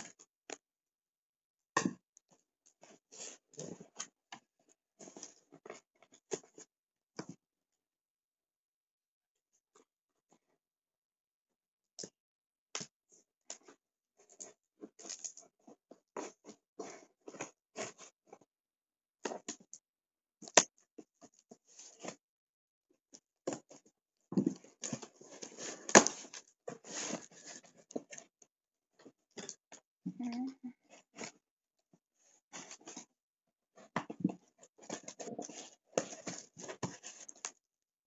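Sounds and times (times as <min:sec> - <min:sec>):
rummaging in cardboard box: 0:24.5 - 0:28.2, 0:34.4 - 0:37.4.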